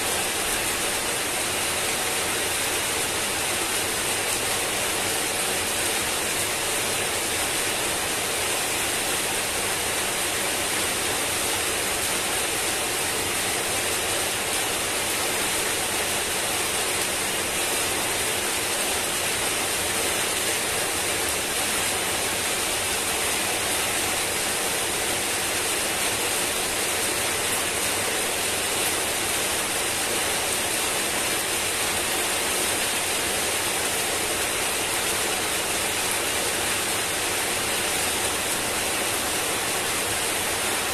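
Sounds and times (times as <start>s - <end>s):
heavy rain falling: 0.0s - 40.9s.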